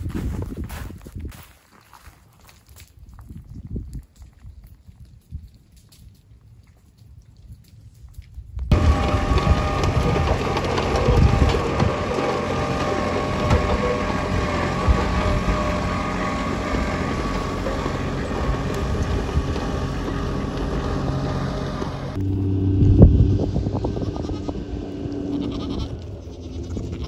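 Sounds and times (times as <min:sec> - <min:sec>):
wind noise on microphone: 0:00.0 - 0:01.6, 0:02.8 - 0:12.1, 0:22.2 - 0:27.0
engine humming: 0:08.6 - 0:27.0.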